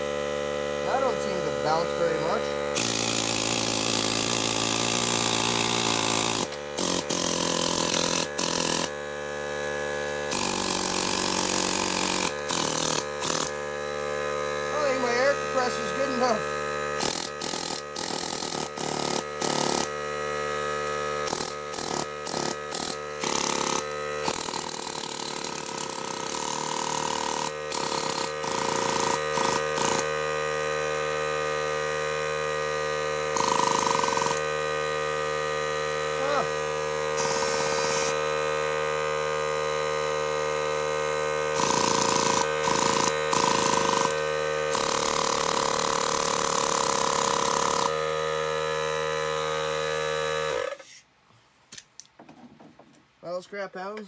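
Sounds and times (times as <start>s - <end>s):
air compressor humming: 0.0s - 51.1s
air tool bursts of rushing air: 37.2s - 38.2s, 50.7s - 51.1s.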